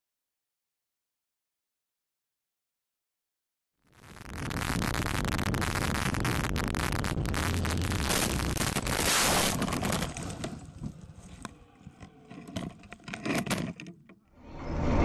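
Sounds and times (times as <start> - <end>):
wind noise on microphone: 4.0 - 10.0
camera tumbling knocks and scrapes: 8.0 - 14.2.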